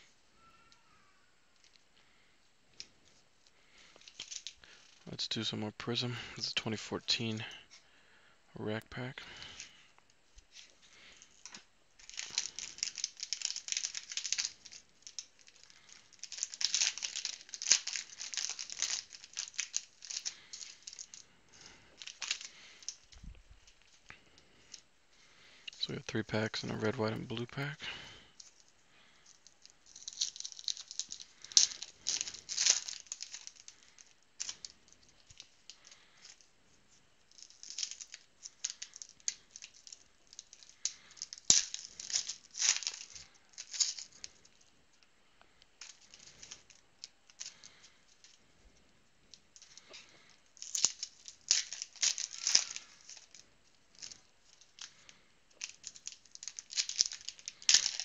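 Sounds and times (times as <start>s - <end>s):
foil wrappers tearing and crinkling: 3.7s - 5.1s, 10.5s - 23.1s, 25.8s - 36.5s, 37.2s - 44.6s, 45.8s - 48.4s, 49.6s - 58.0s.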